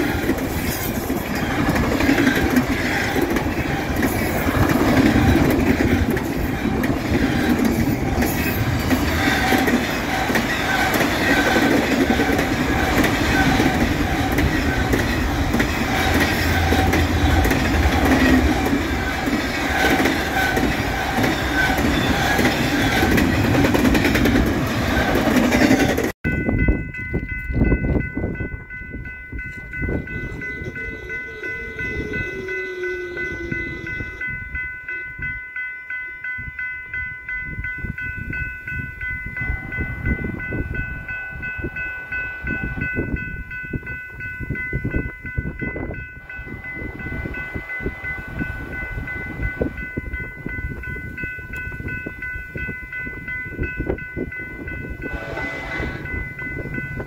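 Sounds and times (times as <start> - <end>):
freight train wheels rumbling: 0.0 - 35.4, 36.3 - 57.0
distant locomotive horn: 9.0 - 23.3, 30.0 - 35.2, 55.0 - 56.3.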